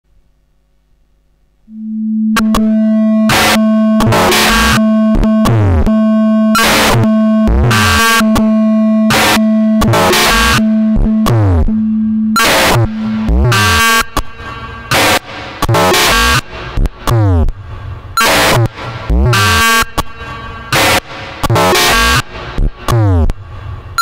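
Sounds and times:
low electronic drone: 1.6 - 24.0
downward sweeping electronic tones: 1.7 - 14.9
loud noise bursts: 1.7 - 24.0.

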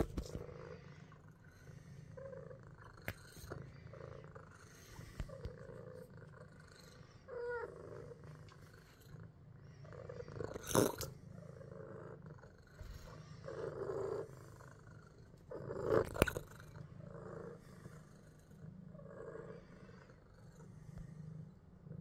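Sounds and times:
cat purring: 0.0 - 22.0.

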